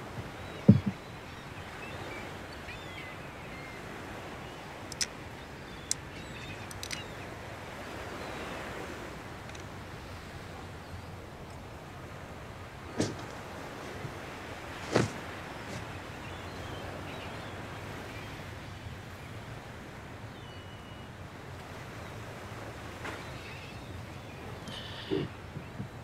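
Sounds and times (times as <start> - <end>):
sea and wind: 0.0 - 26.0
faint bird calls: 0.2 - 11.2, 21.9 - 26.0.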